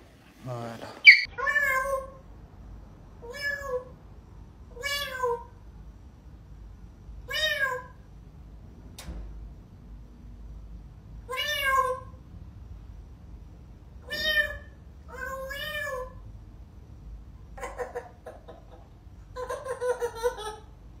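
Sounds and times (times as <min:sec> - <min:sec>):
parrot imitating cat meow: 0:01.0 - 0:02.2, 0:03.2 - 0:04.0, 0:04.7 - 0:05.6, 0:07.2 - 0:08.1, 0:11.2 - 0:12.2, 0:14.0 - 0:16.2
parrot imitating baby laugh: 0:17.6 - 0:20.8.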